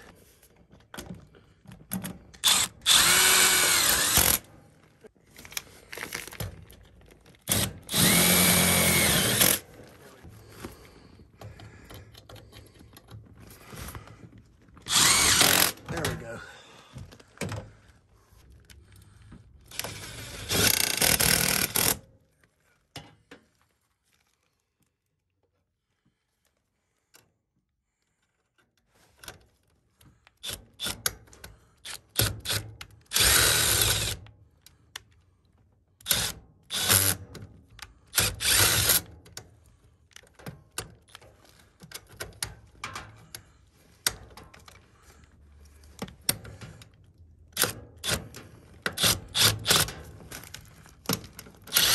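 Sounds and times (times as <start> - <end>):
cordless drill driving screws: 2.4 - 4.5, 7.5 - 9.6, 14.9 - 15.9, 19.7 - 22.0, 31.8 - 34.2, 36.0 - 37.2, 38.1 - 39.1, 48.9 - 49.9
clicks and metal rattles: 40.2 - 44.8.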